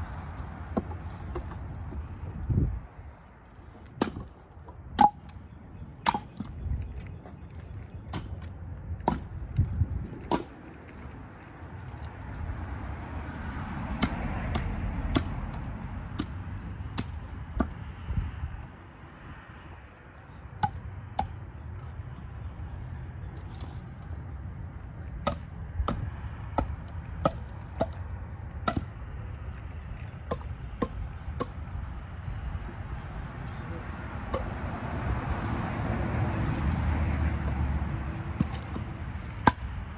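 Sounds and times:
axe chopping branches off logs: 0:03.9 - 0:05.4, 0:06.0 - 0:06.5, 0:08.0 - 0:09.4, 0:10.2 - 0:10.7, 0:13.9 - 0:17.9, 0:20.6 - 0:21.4, 0:25.2 - 0:29.0, 0:30.2 - 0:31.6, 0:34.2 - 0:34.8, 0:38.3 - 0:39.8.

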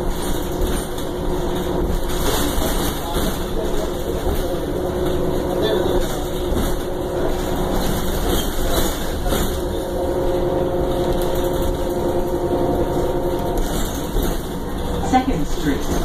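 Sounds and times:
bus engine rumble: 0:00.0 - 0:16.0
higher whine: 0:04.7 - 0:15.7
high whine: 0:08.5 - 0:15.2.

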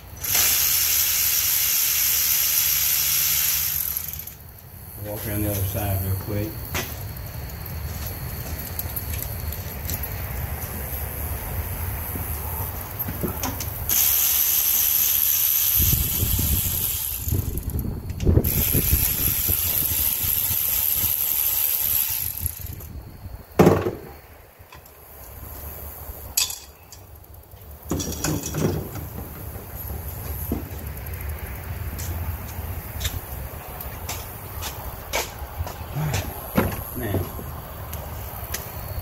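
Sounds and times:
steady high hiss: 0:00.0 - 0:39.0
ratchet clicking: 0:00.2 - 0:04.4, 0:13.6 - 0:23.0
metal tools handling: 0:26.4 - 0:27.1, 0:27.9 - 0:29.1
sharp knocks: 0:36.5 - 0:37.5.

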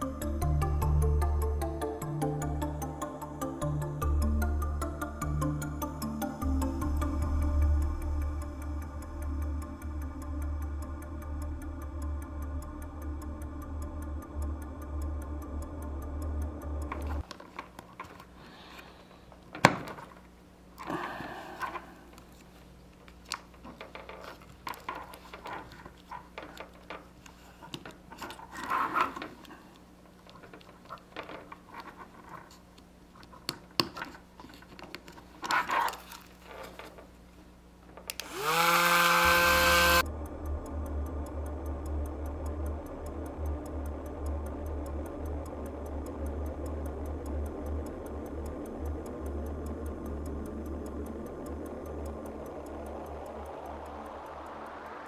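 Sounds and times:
small motor and propeller whine: 0:38.2 - 0:55.0.

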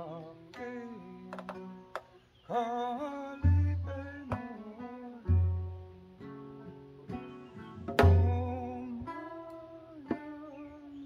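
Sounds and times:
acoustic guitar picking: 0:00.0 - 0:11.0
banjo: 0:00.0 - 0:11.0
barrel drum deep beats: 0:03.4 - 0:04.6, 0:05.2 - 0:06.0, 0:07.8 - 0:09.2.

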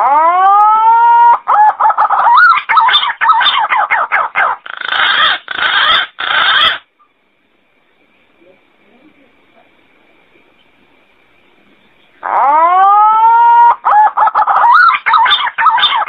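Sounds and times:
pigeon whistling call: 0:12.2 - 0:16.0.

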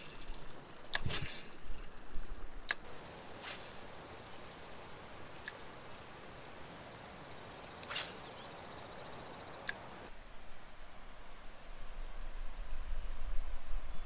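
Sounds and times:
fishing rod swish: 0:00.9 - 0:01.7, 0:03.3 - 0:03.9, 0:07.8 - 0:08.6.

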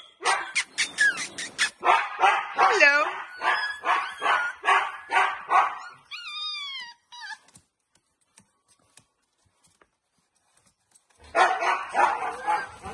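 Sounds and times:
puppy whining: 0:00.0 - 0:01.8, 0:03.2 - 0:05.1, 0:05.7 - 0:07.9, 0:12.0 - 0:12.9
puppy yipping: 0:00.0 - 0:07.7, 0:11.3 - 0:12.9
puppy barking: 0:00.2 - 0:00.7, 0:01.7 - 0:07.4, 0:11.2 - 0:12.9.

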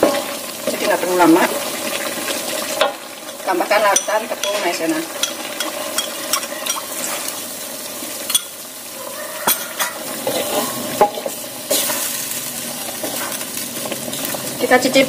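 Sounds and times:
stir-fry sizzling in a wok: 0:00.0 - 0:15.0
spatula stirring in a wok: 0:02.3 - 0:07.4, 0:09.4 - 0:14.4.

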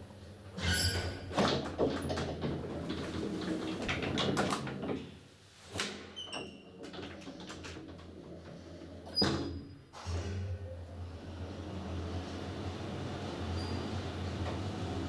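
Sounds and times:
lift doors rattling and clicking: 0:00.6 - 0:05.2
lift car low hum: 0:10.0 - 0:15.0.

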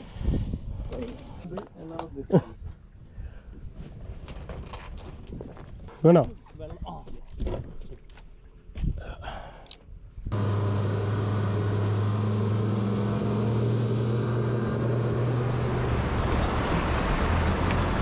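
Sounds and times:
outboard motor drone: 0:10.3 - 0:18.0.

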